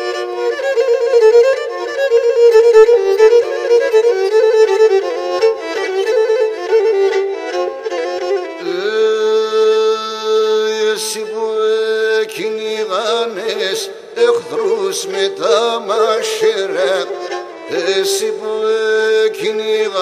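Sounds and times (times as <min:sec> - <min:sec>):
bowed lyra melody: 0:00.0 - 0:08.8.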